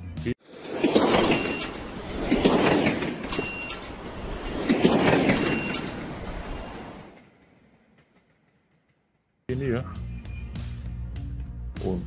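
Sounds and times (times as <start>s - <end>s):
train rushing along rails: 0.4s - 9.5s.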